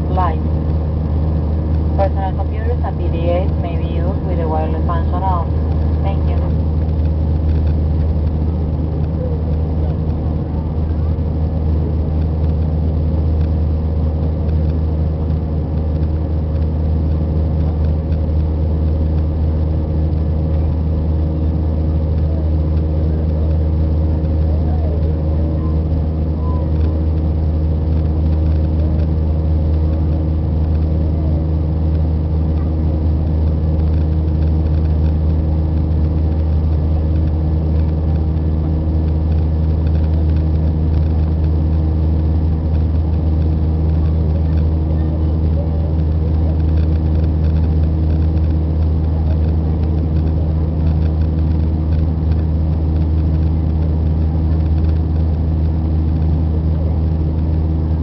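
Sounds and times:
steady tones: 0.0s - 21.6s
jet engine drone: 0.0s - 58.0s.

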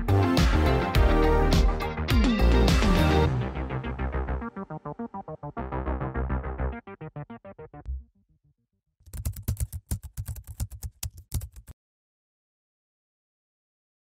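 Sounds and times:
background keyboard music: 0.0s - 8.1s
computer keyboard typing: 9.1s - 11.8s.

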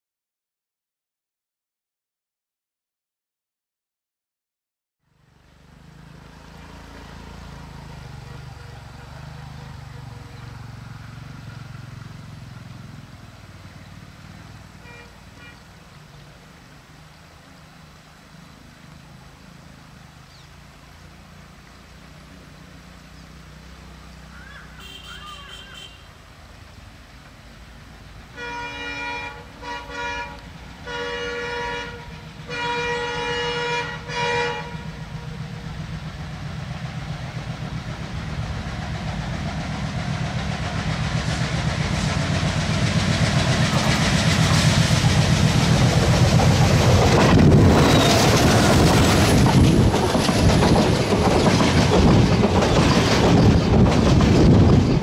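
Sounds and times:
locomotive engine drone: 5.0s - 55.0s
rail noise: 5.1s - 55.0s
locomotive horn blasts: 14.8s - 15.7s, 24.8s - 26.2s, 28.3s - 35.0s.

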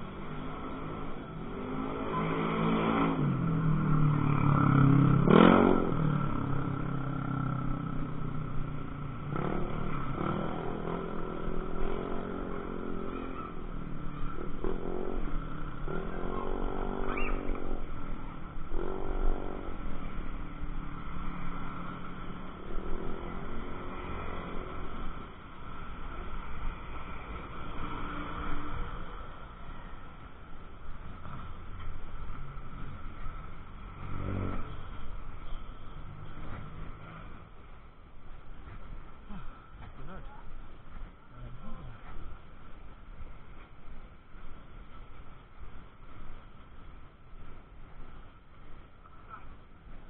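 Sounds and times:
small motorcycles passing: 0.0s - 41.9s.

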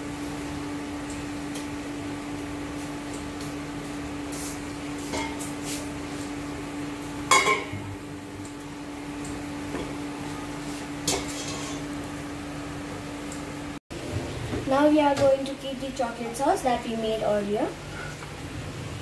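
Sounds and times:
glass bowl clanking on pot: 7.3s - 7.8s.

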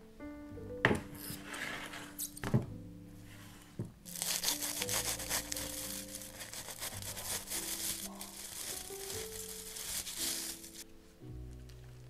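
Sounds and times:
background music: 0.0s - 12.0s
aluminium foil crinkling: 4.0s - 10.9s.

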